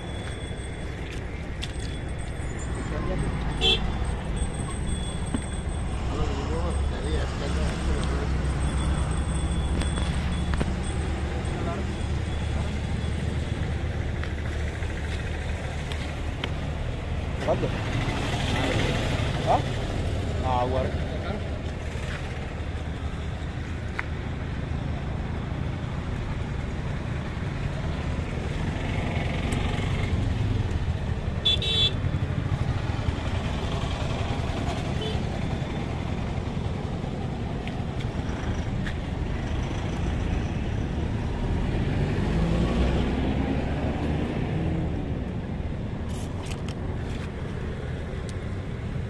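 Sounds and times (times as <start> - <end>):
traffic rumble: 0.0 - 49.0
vehicle passing: 37.9 - 45.2.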